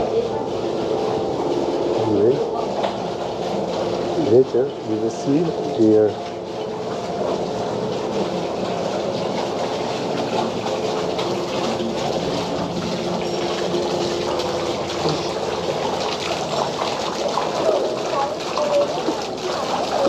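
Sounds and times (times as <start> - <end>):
running water rushing: 0.0 - 20.0.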